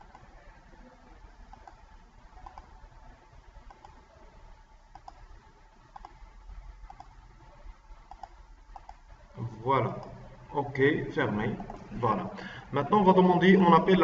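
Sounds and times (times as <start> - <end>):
computer mouse clicks: 0.0 - 0.3, 1.5 - 2.8, 3.6 - 4.0, 4.9 - 5.3, 5.9 - 6.2, 6.8 - 7.2, 8.0 - 9.0
low room hum: 0.0 - 14.0.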